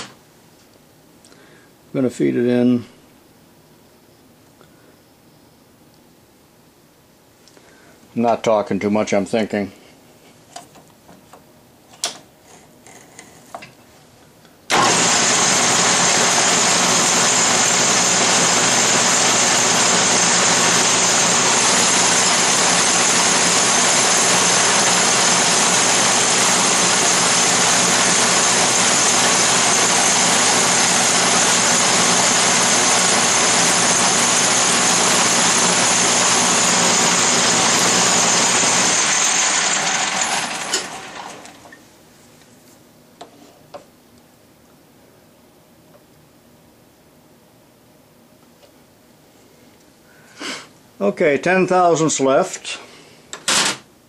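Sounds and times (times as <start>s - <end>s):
lathe motor whining: 14.7s - 41.7s.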